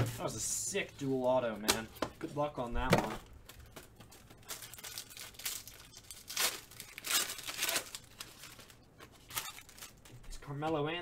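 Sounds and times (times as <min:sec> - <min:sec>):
plastic wrapper tearing and crinkling: 0:03.4 - 0:10.2.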